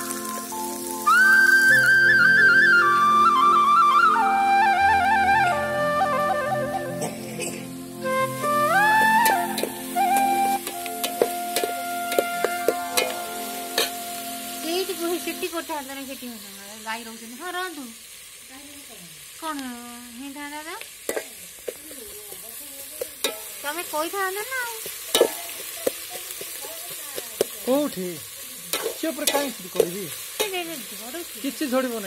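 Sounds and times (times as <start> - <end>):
onions sizzling: 0.0 - 32.0
wavering pitched calls: 0.1 - 15.7
steady-toned music: 5.5 - 15.6
metal spatula scraping pot: 24.8 - 27.0.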